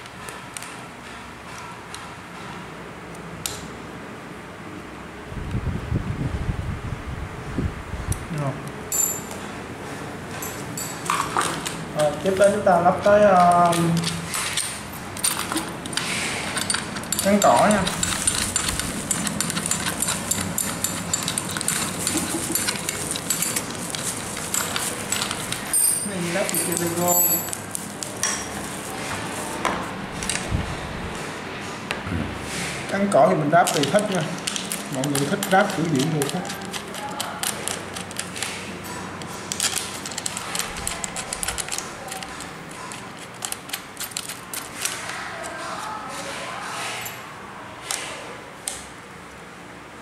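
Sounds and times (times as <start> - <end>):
small metallic clicks and rattles: 13.3 - 28.4, 33.6 - 45.6.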